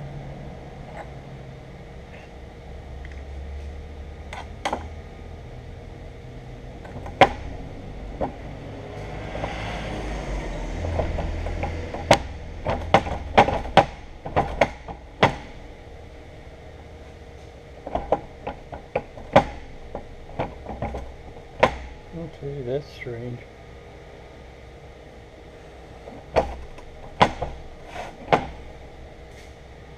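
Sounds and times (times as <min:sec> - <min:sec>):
steady low hum: 0:00.0 - 0:29.9
sharp metal knocks: 0:10.8 - 0:15.6, 0:17.8 - 0:22.0, 0:26.2 - 0:27.6
metal scraping: 0:27.7 - 0:28.7.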